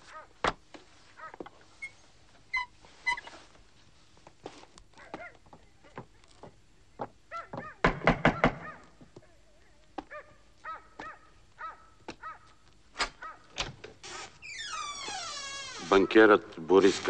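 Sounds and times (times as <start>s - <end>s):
dog barking: 0.0s - 0.4s, 1.2s - 1.4s, 4.9s - 5.4s, 7.3s - 9.0s, 10.0s - 13.6s.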